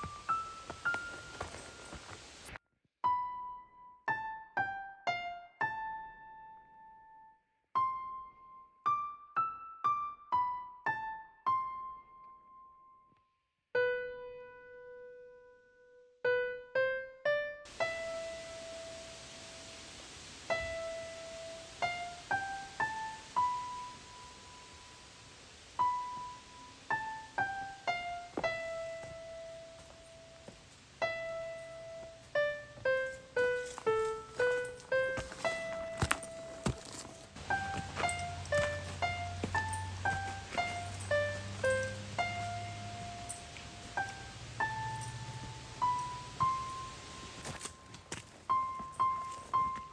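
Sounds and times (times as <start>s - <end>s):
faint outdoor hiss: 0.0s - 2.6s, 16.3s - 49.9s
slow piano notes: 0.0s - 13.2s, 13.8s - 49.9s.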